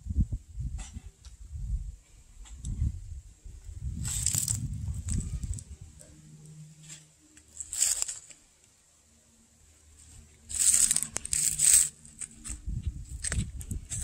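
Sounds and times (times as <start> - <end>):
footsteps crunching dry leaves: 4.0 - 5.6, 7.5 - 8.4, 10.0 - 14.0.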